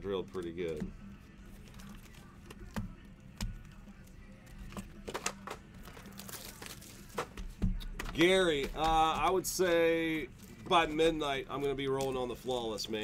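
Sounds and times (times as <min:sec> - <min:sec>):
card boxes knocking and rustling: 0:04.6 - 0:12.3.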